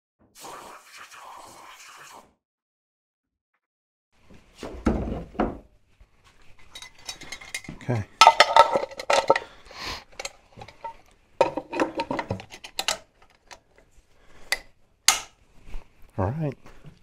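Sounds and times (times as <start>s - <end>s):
clatter of parts: 6.7s - 13.6s.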